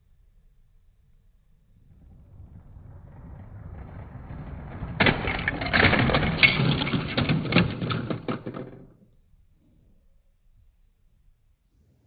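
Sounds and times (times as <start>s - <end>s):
toy train rolling: 2.7s - 9.0s
plastic bricks crashing and clattering: 4.7s - 9.0s.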